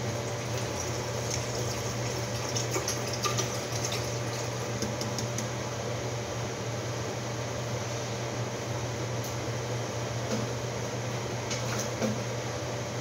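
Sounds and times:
water pouring into metal kettle: 0:00.0 - 0:04.8.

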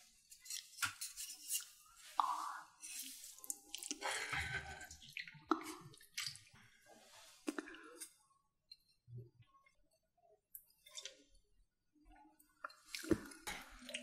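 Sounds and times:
soup sloshing and dripping: 0:00.3 - 0:08.2, 0:10.6 - 0:11.4, 0:12.5 - 0:14.0.

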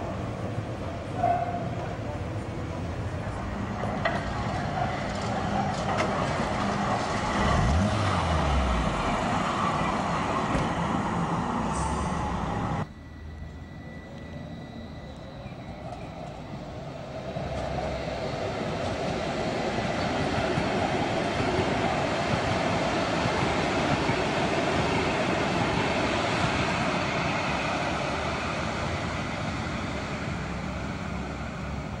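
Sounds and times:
tram approaching: 0:00.0 - 0:32.0
cars driving past: 0:02.7 - 0:14.4.

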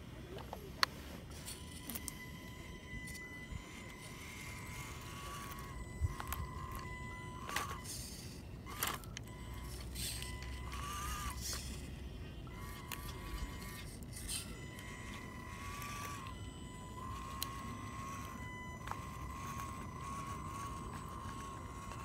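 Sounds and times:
electric motor and gearbox whining: 0:00.0 - 0:22.0.

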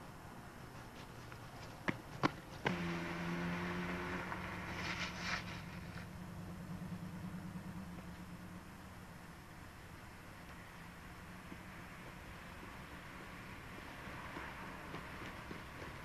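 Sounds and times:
car engine running: 0:02.7 - 0:16.0
brief hiss: 0:04.6 - 0:06.0.

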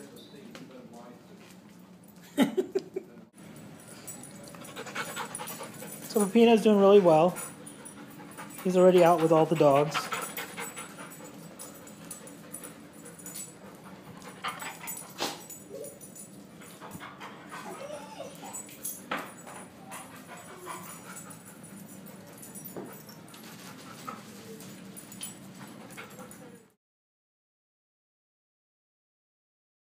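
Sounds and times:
dog whimpering: 0:17.2 - 0:18.7.

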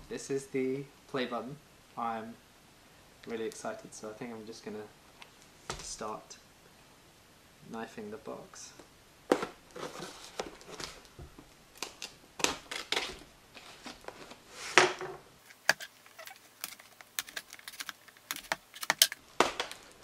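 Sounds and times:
blade tapping cardboard box: 0:15.5 - 0:19.2
knife cutting packing tape: 0:15.5 - 0:19.2.

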